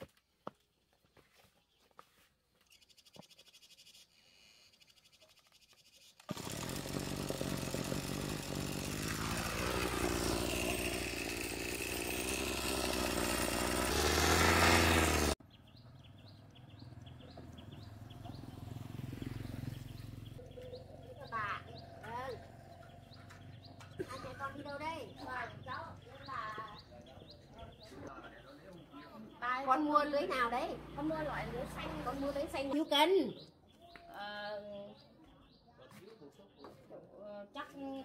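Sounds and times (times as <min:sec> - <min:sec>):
small engine running: 0:04.2 - 0:26.8.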